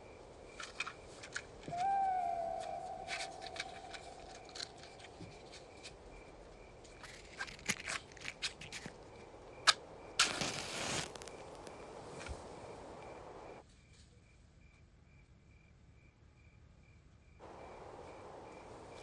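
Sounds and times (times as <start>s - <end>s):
crickets chirping: 0.0s - 19.0s
match striking and flaring: 9.7s - 12.4s.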